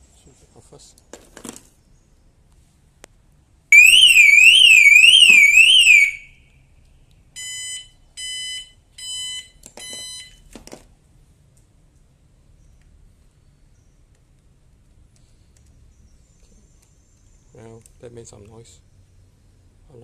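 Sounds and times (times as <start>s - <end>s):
car alarm siren warbling: 3.8s - 6.4s
short steady beeps: 7.4s - 10.4s.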